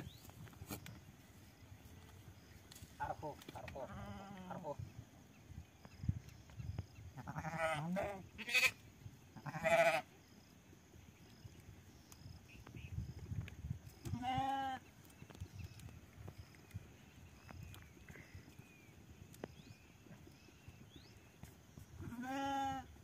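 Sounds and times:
sheep and goats bleating: 3.7 - 4.8, 7.1 - 8.8, 9.4 - 10.1, 14.0 - 14.9, 22.0 - 23.0.

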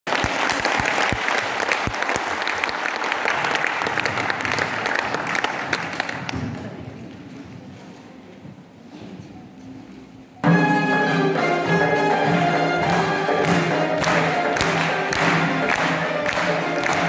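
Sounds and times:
audience applauding: 0.1 - 6.4, 12.7 - 17.0.

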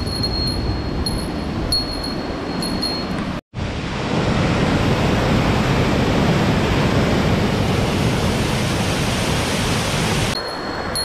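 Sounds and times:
small waterfall rushing: 3.6 - 10.4.

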